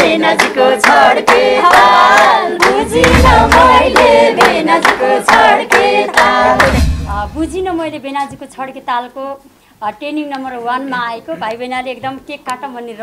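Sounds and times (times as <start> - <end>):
hand claps: 0.0 - 6.9
group singing folk song: 0.0 - 7.3.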